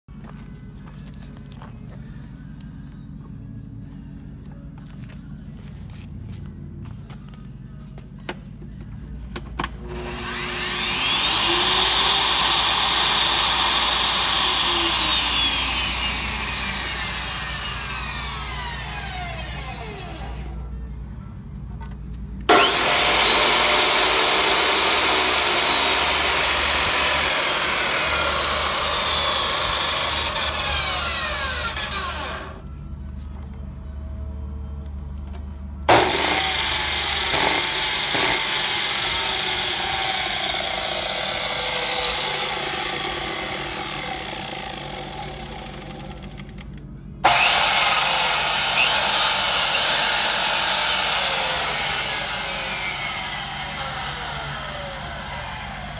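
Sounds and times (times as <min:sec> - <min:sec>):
chop saw motor running: 0:09.8 - 0:20.6, 0:22.5 - 0:32.7, 0:35.9 - 0:55.9
miter saw running: 0:09.8 - 0:20.6, 0:22.5 - 0:32.7, 0:35.9 - 0:55.9.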